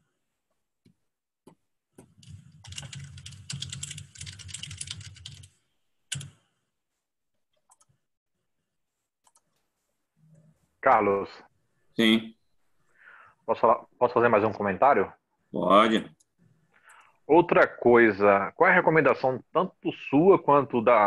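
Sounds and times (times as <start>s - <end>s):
fast keyboard typing: 2.0s - 6.4s.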